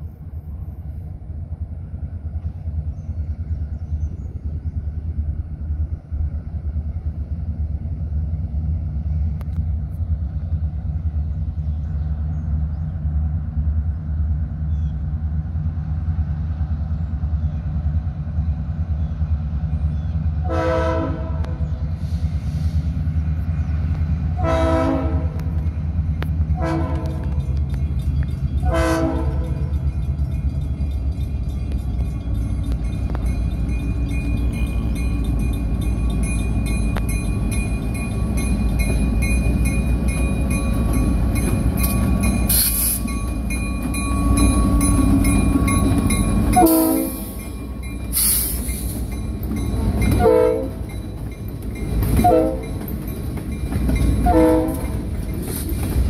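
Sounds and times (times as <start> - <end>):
diesel locomotive rumbling: 0.0 - 56.0
train air horn: 20.4 - 22.2, 24.4 - 25.4, 26.6 - 27.4, 28.6 - 29.6, 46.6 - 47.4, 50.2 - 50.8, 52.2 - 52.7, 54.2 - 55.0.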